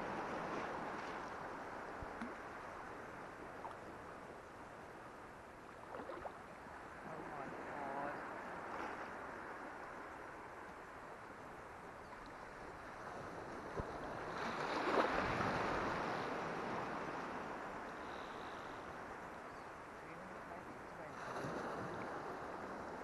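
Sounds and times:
water noise: 0.0s - 23.0s
wind: 0.0s - 23.0s.

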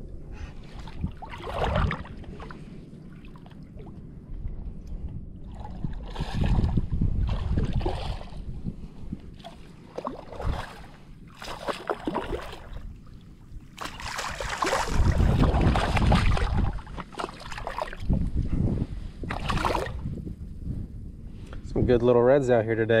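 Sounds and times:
shallow water sloshing and splashing: 0.4s - 18.4s, 19.2s - 20.3s.

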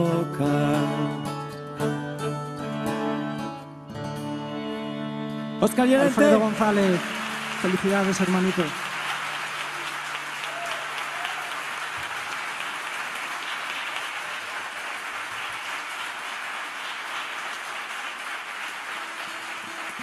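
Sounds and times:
audience applauding: 5.9s - 20.0s.

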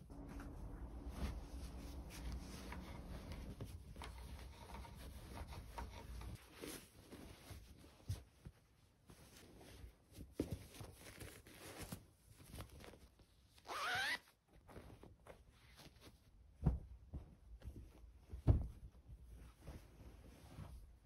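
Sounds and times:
fabric rustling: 0.0s - 21.0s
zipper pulled shut: 13.7s - 14.2s
soft thumps: 16.6s - 19.0s.

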